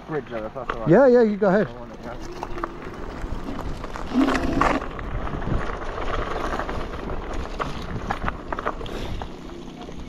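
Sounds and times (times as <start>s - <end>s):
electric scooter rolling rumble: 0.0s - 10.0s
wind buffeting microphone: 2.0s - 9.3s.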